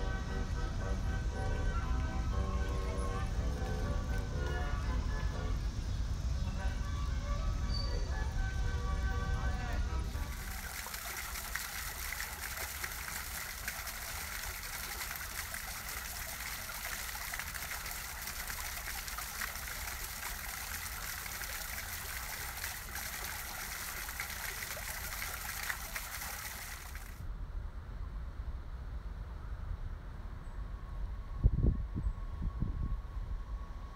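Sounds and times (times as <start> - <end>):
fountain jet splashing: 0.0 - 27.2.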